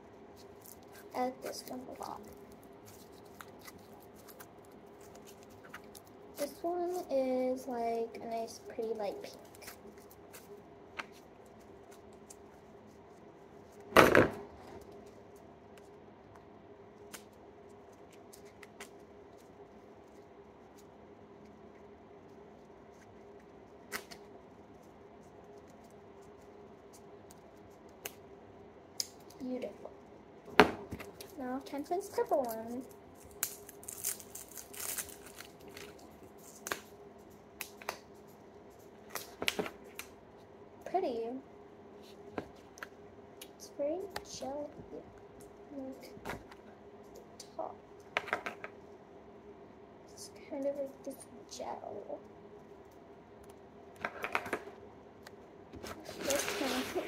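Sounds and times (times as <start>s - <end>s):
scratchy plastic rustle: 0.3s - 15.4s, 31.1s - 37.4s, 55.8s - 57.0s
loud short thump: 14.0s - 14.5s
slime clicking and crackling: 31.1s - 36.9s.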